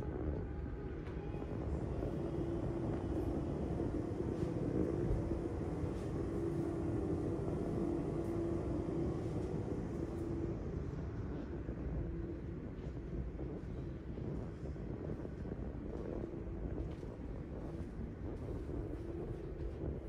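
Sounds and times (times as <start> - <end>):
ventilation hum: 0.0 - 20.0
droning tone: 1.2 - 12.5.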